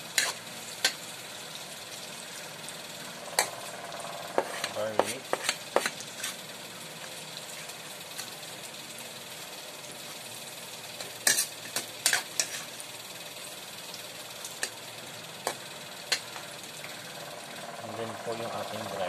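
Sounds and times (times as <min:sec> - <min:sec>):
food sizzling in oil: 0:00.0 - 0:19.0
ladle scraping and clanking wok: 0:00.1 - 0:01.0, 0:03.2 - 0:06.4, 0:11.0 - 0:12.8.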